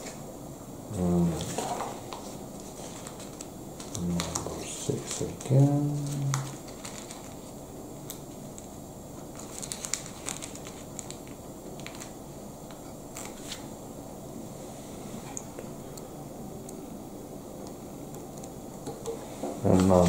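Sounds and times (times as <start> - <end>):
sticker sheet crinkling: 2.6 - 7.5, 9.3 - 12.2.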